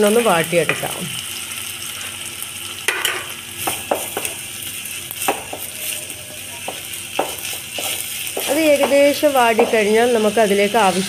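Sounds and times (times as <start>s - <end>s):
onions sizzling in hot oil: 0.0s - 11.0s
spatula knocking against pot: 8.4s - 9.9s.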